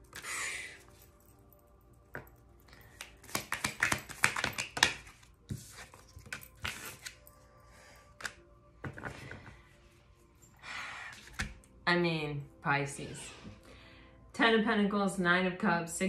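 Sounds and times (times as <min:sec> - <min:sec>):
cards flicking and tapping: 0:02.9 - 0:07.2
cards sliding: 0:03.0 - 0:07.2.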